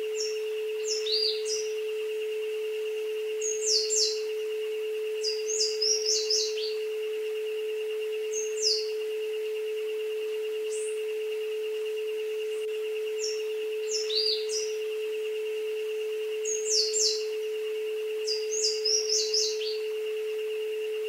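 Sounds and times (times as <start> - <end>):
jungle soundscape: 0.0 - 21.0
steady low tone: 0.0 - 21.0
wavering high tone: 0.0 - 21.0
birds chirping: 0.1 - 2.2, 3.3 - 9.1, 12.5 - 15.4, 16.3 - 21.0.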